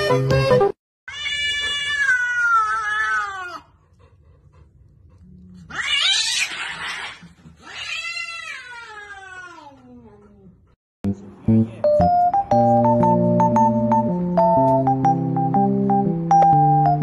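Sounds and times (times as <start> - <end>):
cat hissing cry: 1.1 - 3.7, 5.7 - 9.7
cats yowling: 1.1 - 3.8, 5.6 - 10.1.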